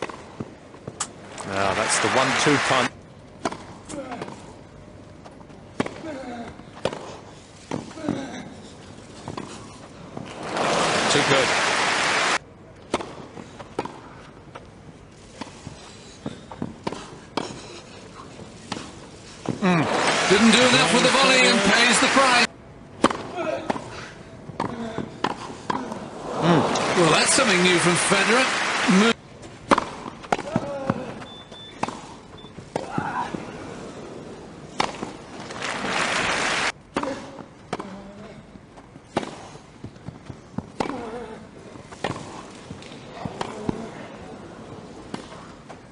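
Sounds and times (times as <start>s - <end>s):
crowd applauding and cheering: 1.4s - 2.9s, 10.3s - 12.4s, 19.6s - 22.5s, 26.4s - 29.2s, 35.4s - 36.7s
tennis racquets striking balls: 3.4s - 4.4s, 12.8s - 14.6s, 23.0s - 23.9s, 24.5s - 26.1s, 29.5s - 33.5s, 34.7s - 36.3s, 39.0s - 41.2s, 41.9s - 44.3s
racket hitting tennis ball: 29.6s - 31.1s, 34.8s - 35.2s
tennis ball bouncing: 29.6s - 33.1s, 34.8s - 35.2s, 39.1s - 41.0s.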